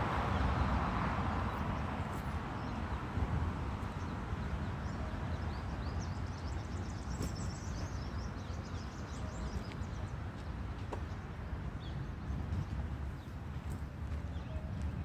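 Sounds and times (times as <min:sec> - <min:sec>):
small birds chirping: 0:03.8 - 0:14.9.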